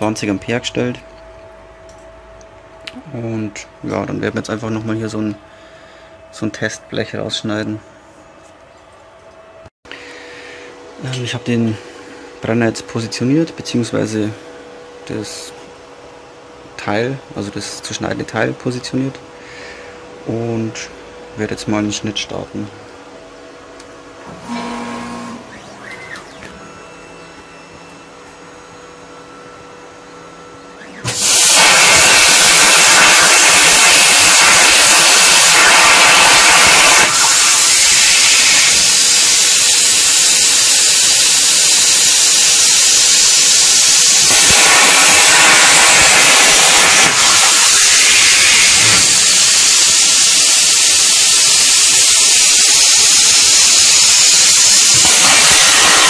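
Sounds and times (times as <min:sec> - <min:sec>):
plasma cutter torch hissing: 0:31.0 - 0:56.0.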